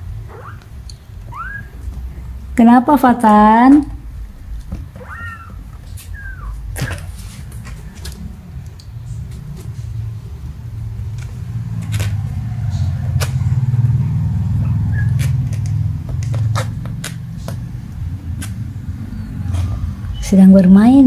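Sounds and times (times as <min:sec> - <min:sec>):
kittens scratching fabric: 0:05.0 - 0:08.4, 0:14.9 - 0:17.7.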